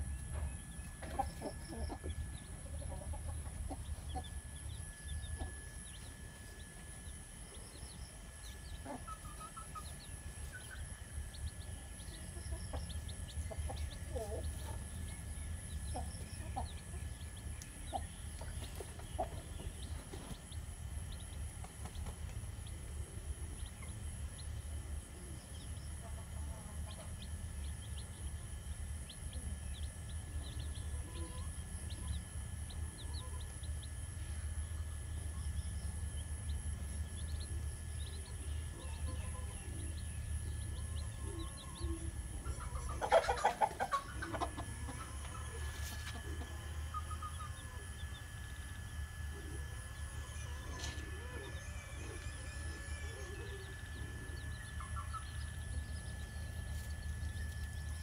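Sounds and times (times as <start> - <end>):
steady low rumble: 0.0 - 43.0, 43.6 - 58.0
chickens clucking: 0.0 - 58.0
loud chicken call: 42.6 - 44.6.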